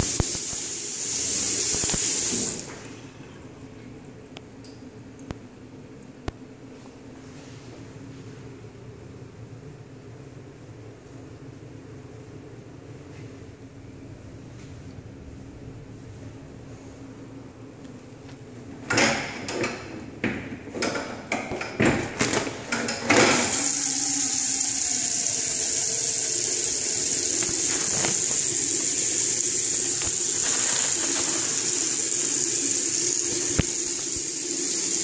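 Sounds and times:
water running into steel sink: 0.0s - 2.8s, 22.8s - 35.0s.

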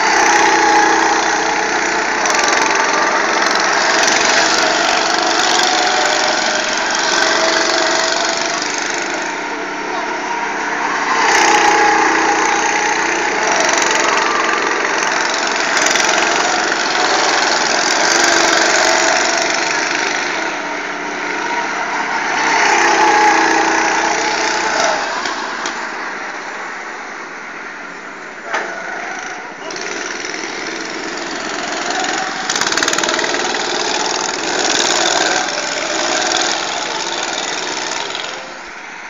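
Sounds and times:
go-kart engines passing: 0.0s - 39.0s.

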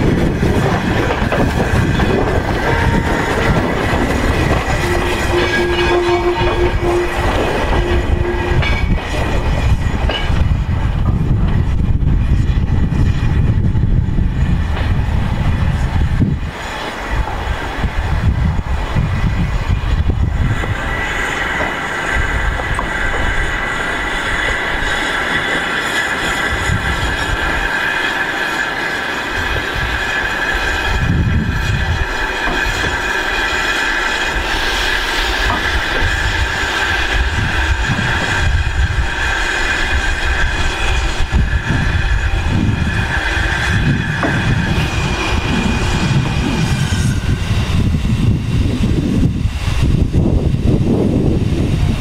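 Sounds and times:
train wheels squealing on rails: 0.0s - 52.0s
wind on microphone: 0.0s - 52.0s.

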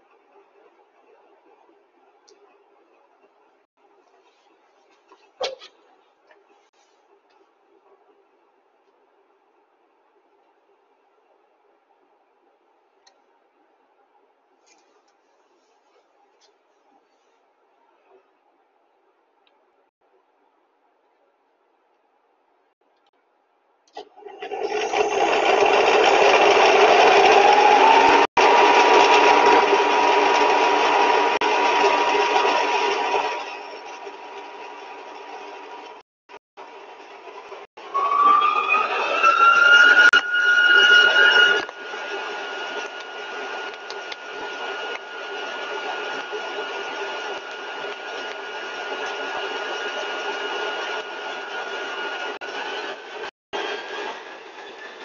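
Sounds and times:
high whine: 37.8s - 48.6s.

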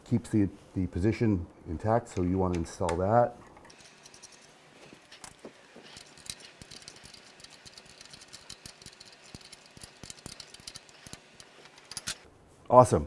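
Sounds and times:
wrench clicking on metal: 5.9s - 12.2s.

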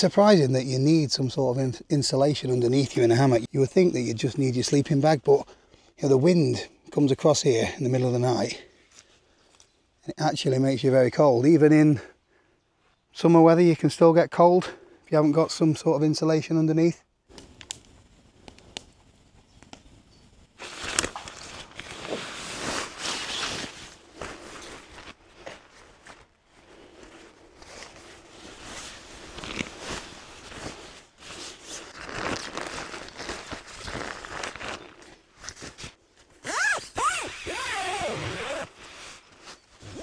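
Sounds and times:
rustling and crunching handling: 20.6s - 40.0s.

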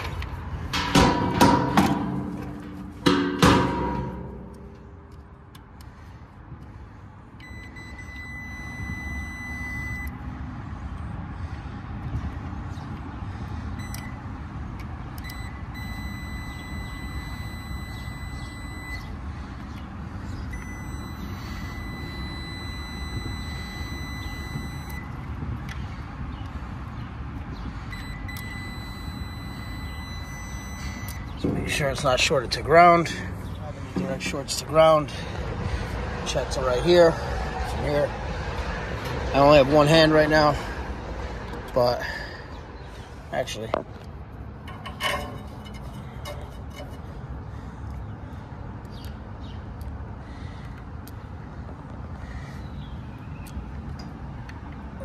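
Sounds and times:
continuity meter beeping: 7.4s - 10.2s, 15.2s - 19.1s, 20.5s - 25.1s, 27.9s - 31.3s.

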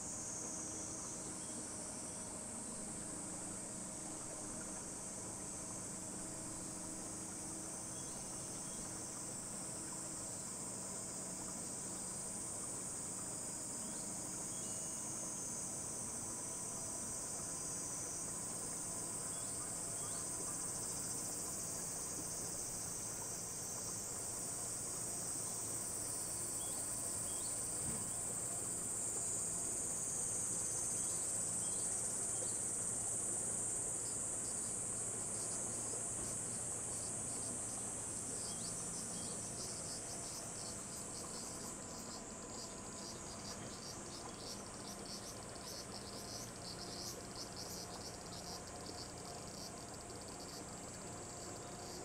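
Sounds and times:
insect chorus trilling: 0.0s - 52.0s.

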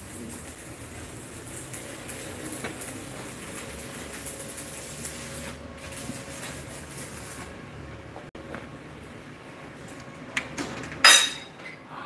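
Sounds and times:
arc welding crackling hiss: 0.0s - 7.8s.

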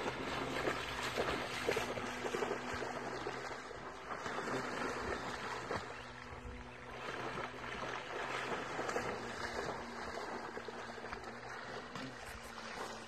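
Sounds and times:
dog splashing through water: 0.0s - 13.0s
steady low hum: 0.0s - 13.0s.

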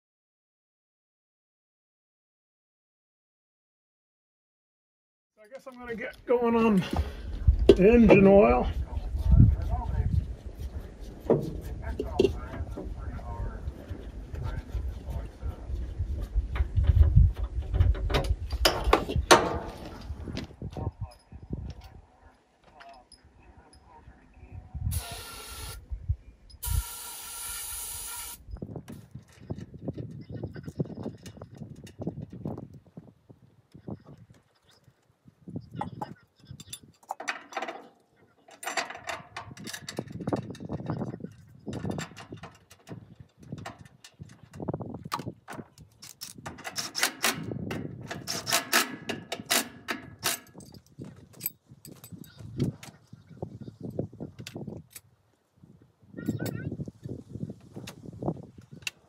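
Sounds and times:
hissing bursts: 24.9s - 25.8s, 26.6s - 28.4s.

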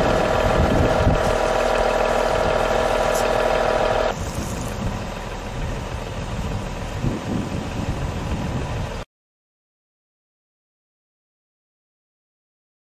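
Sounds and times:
hose spraying water: 0.0s - 4.8s
pump engine running: 0.0s - 9.0s.

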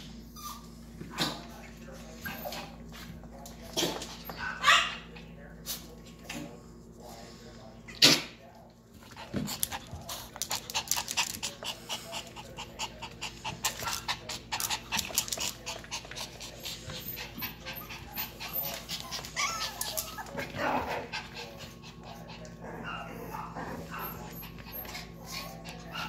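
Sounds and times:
small dog panting: 9.0s - 26.0s.

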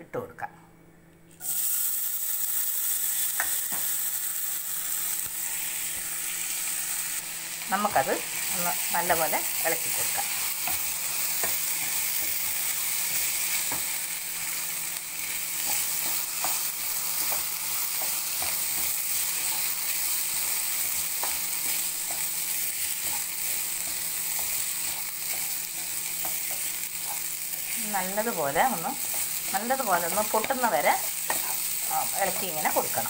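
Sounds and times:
wheat sizzling in oil: 1.4s - 33.0s
spatula scraping pan: 29.0s - 33.0s.

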